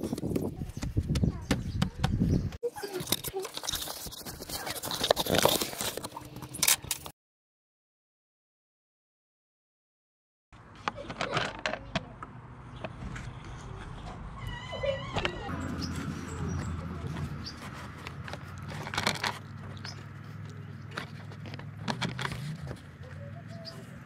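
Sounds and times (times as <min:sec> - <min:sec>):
hands handling plastic parts: 0:02.8 - 0:07.1, 0:17.0 - 0:23.1
short high squeak: 0:14.4 - 0:15.5.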